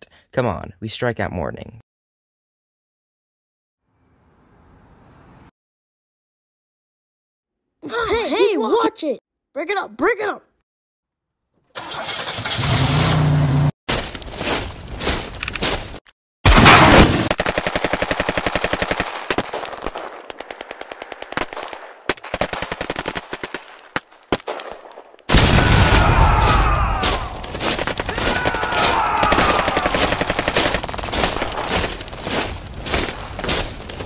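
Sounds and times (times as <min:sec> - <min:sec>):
single gunshots: 0:16.4 - 0:17.6, 0:18.8 - 0:32.0
machine-gun fire: 0:16.5 - 0:26.1, 0:27.0 - 0:32.3.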